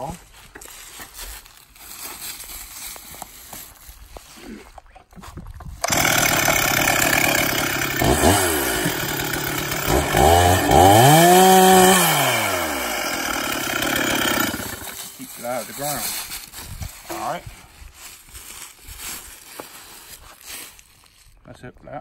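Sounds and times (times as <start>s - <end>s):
chainsaw revving: 5.8s - 15.2s.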